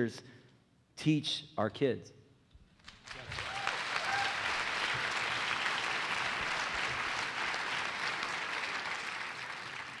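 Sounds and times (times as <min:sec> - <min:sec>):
audience applauding: 0:02.9 - 0:10.0.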